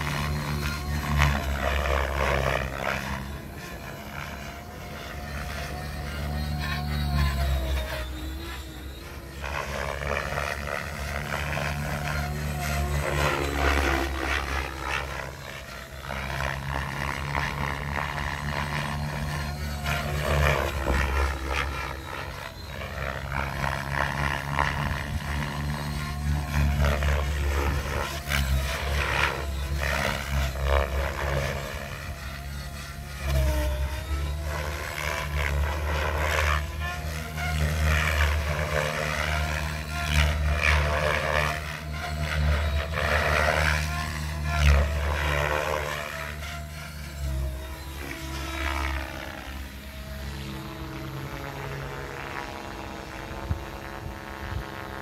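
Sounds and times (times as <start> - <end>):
helicopter rotor beating: 0.0 - 55.0
motor and tail rotor whine: 0.0 - 55.0.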